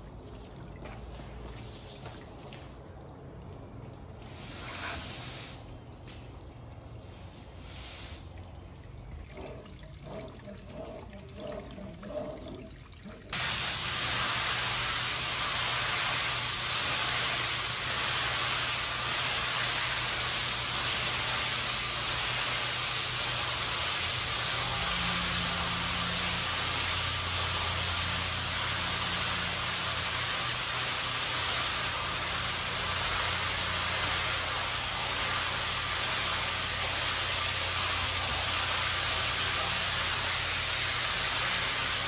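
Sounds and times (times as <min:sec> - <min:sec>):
pressure washer spray hissing: 0:04.3 - 0:05.7, 0:13.4 - 0:42.0.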